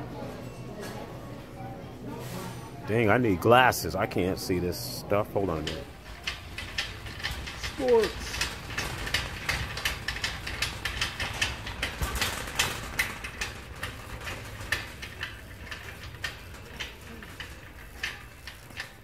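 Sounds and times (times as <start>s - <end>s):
shopping cart wheels rumbling: 3.0s - 19.0s
shopping cart clicks and rattles: 5.4s - 19.0s.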